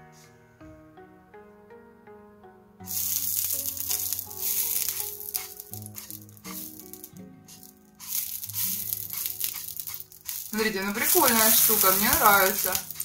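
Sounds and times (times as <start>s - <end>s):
oil spray sizzling in a pan: 2.9s - 13.0s.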